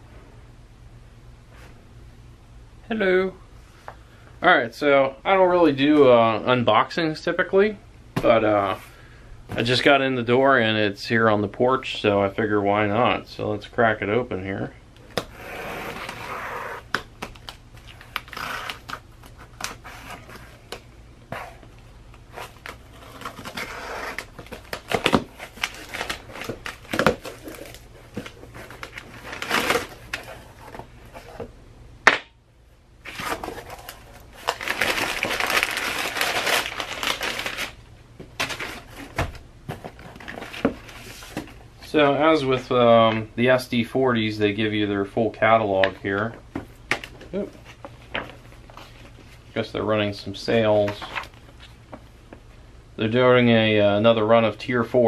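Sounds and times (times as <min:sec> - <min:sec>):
cardboard flaps scraping: 0:15.2 - 0:20.7
packing paper rustling: 0:15.2 - 0:20.8, 0:22.2 - 0:31.5, 0:33.0 - 0:41.6.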